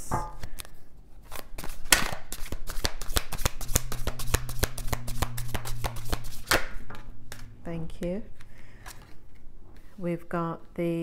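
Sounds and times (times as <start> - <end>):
cards being shuffled: 0.5 - 6.7.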